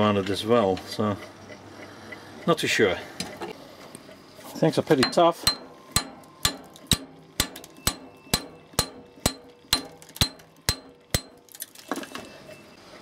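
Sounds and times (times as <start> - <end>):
hammer striking metal: 5.0 - 11.5.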